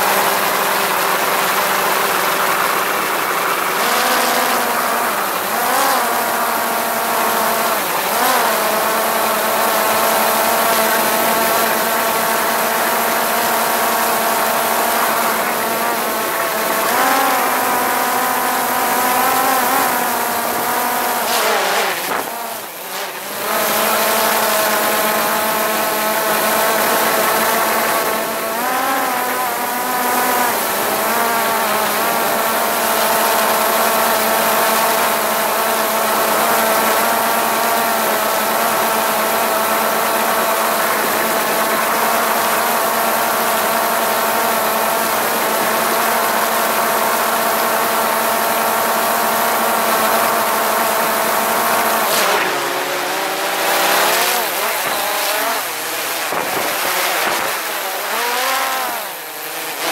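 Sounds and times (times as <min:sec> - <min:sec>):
drone propellers whining: 0:48.4 - 0:59.9.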